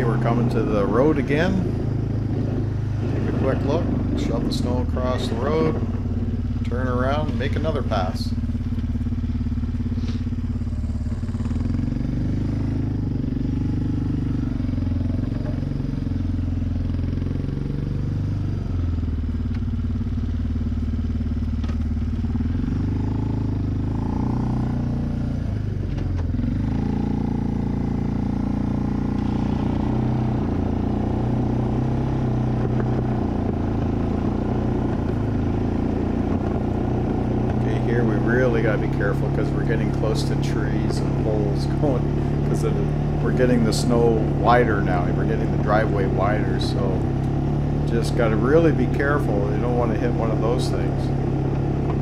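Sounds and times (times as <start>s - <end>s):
quad bike engine running: 0.0s - 52.0s.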